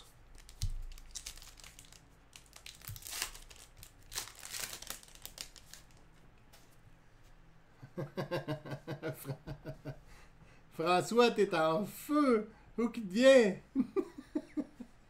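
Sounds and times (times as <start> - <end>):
card pack wrapper crinkling: 0.2 - 6.1.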